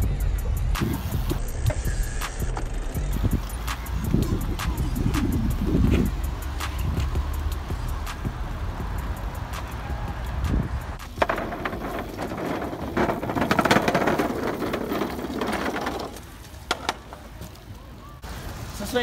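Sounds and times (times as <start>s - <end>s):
bike tyres rushing on asphalt: 3.0s - 19.0s
sharp knocks: 11.0s - 17.2s.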